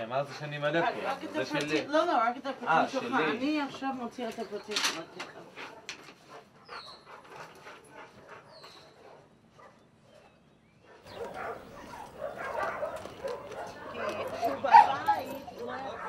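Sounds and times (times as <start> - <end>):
dogs whining and barking: 5.2 - 16.0.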